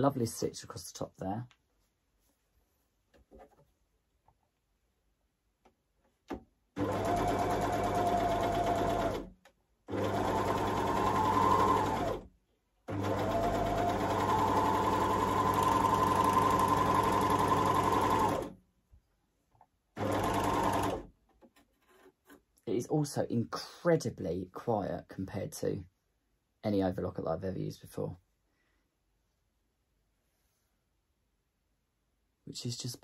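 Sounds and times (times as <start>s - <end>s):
overlocker sewing machine running: 6.8s - 9.3s, 9.9s - 12.3s, 12.9s - 18.5s, 20.0s - 21.1s.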